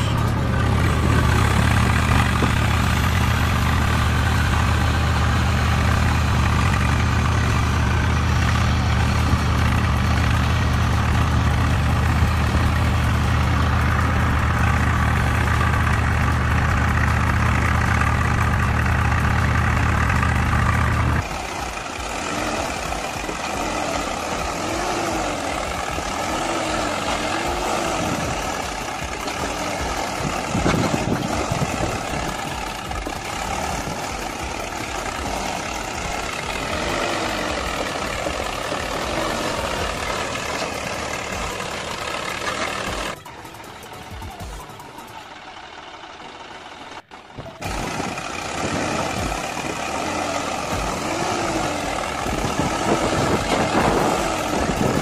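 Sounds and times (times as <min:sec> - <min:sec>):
engine with wavering pitch: 0:00.0 - 0:55.0
tractor engine idling: 0:00.0 - 0:55.0.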